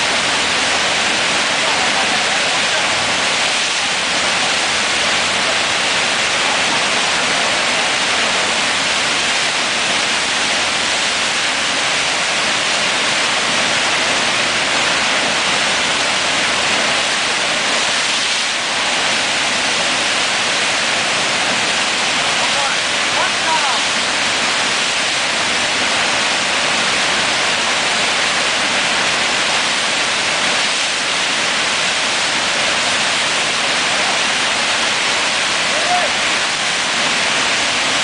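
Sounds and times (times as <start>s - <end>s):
rush of churning whitewater: 0.0s - 38.0s.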